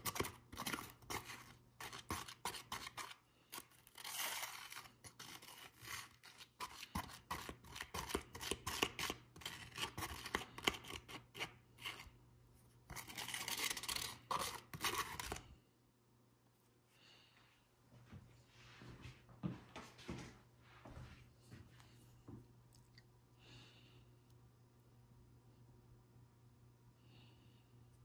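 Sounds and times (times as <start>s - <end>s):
plastic spoon scraping plastic cup: 0.0s - 12.2s, 12.9s - 15.5s.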